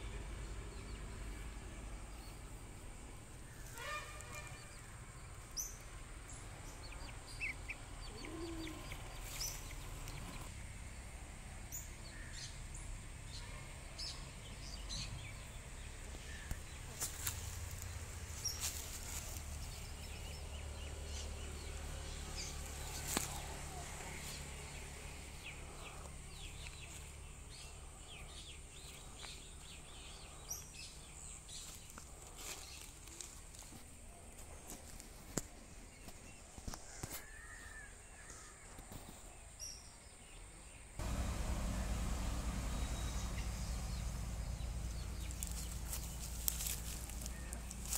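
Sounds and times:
birds chirping: 0.0 - 47.9
diesel engine thudding: 41.0 - 47.9.

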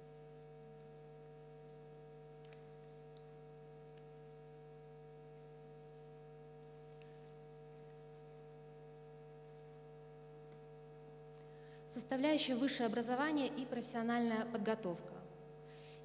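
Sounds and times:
electrical mains hum: 0.0 - 16.0
faint ticks: 1.6 - 4.7, 5.3 - 8.4.

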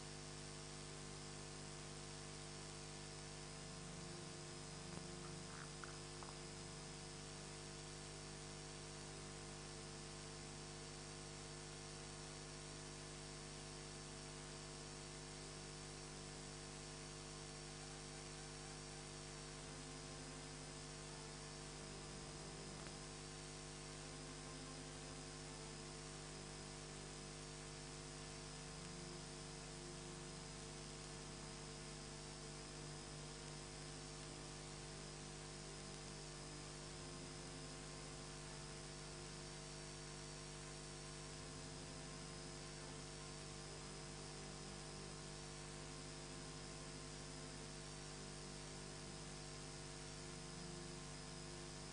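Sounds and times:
electrical hum: 0.0 - 51.9.

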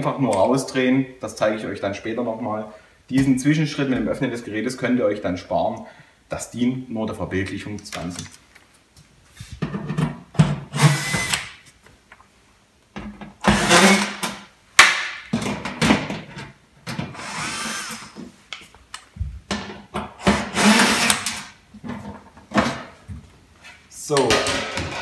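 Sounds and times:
cordless drill whirring: 10.8 - 11.5, 13.5 - 14.2, 17.2 - 18.2, 20.4 - 21.4
drill clicks: 10.8 - 11.5, 20.2 - 21.4.

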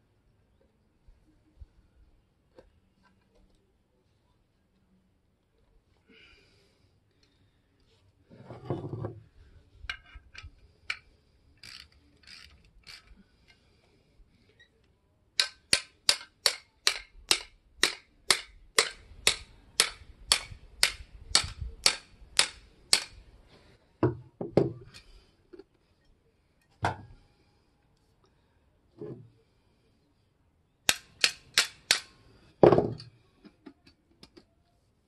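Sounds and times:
ratchet wrench clicking: 11.6 - 13.1.

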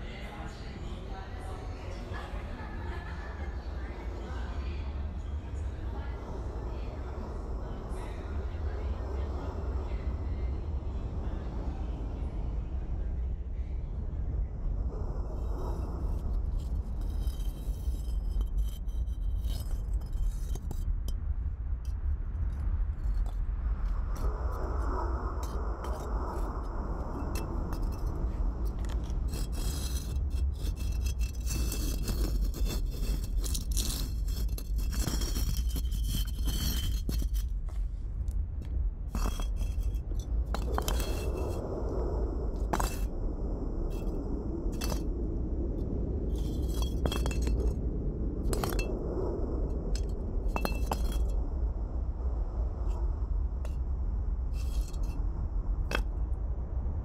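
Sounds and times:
steady low rumble: 0.0 - 57.0
sharp clinks and scrapes: 16.2 - 21.2, 25.4 - 37.8, 39.1 - 41.6, 42.6 - 43.1, 43.9 - 45.1, 46.3 - 47.8, 48.5 - 48.9, 49.8 - 51.3, 54.5 - 55.2.

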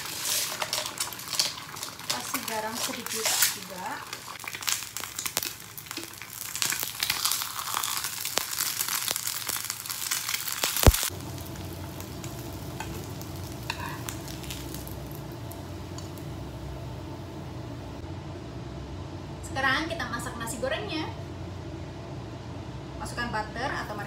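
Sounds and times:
egg sizzling in frying pan: 0.0 - 16.8
steady low hum: 10.8 - 24.0.

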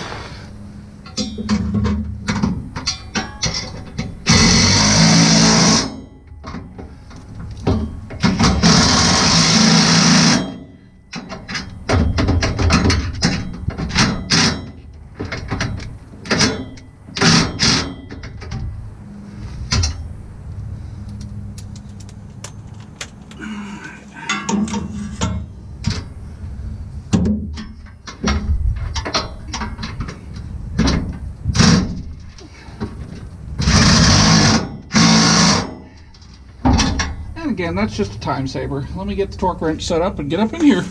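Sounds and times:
cordless power tool driving bolts: 3.2 - 6.0, 7.6 - 10.6, 11.2 - 18.5, 33.6 - 36.0.

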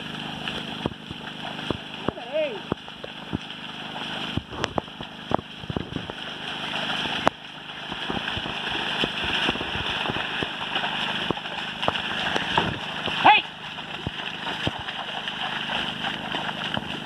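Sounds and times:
hooves splashing through mud: 0.0 - 17.0
steady rushing noise: 1.7 - 17.0.

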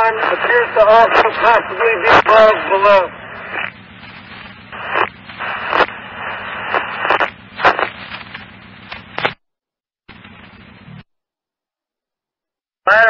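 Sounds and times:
radio scanner hiss and crackle: 0.0 - 9.4
sharp radio clicks: 0.0 - 9.4.

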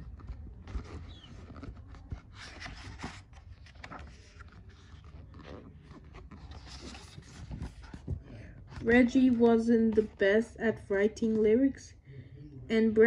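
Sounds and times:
paper pages rustling: 0.0 - 10.2.

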